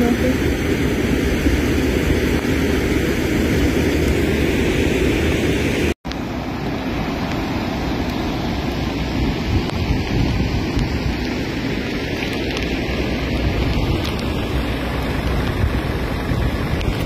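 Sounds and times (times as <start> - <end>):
wind buffeting microphone: 7.8 - 17.0.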